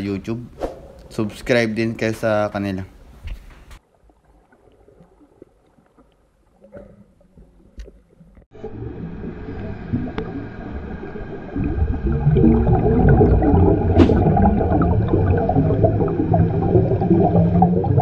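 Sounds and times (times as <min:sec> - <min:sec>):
deep rumbling gurgling: 0:06.6 - 0:18.0.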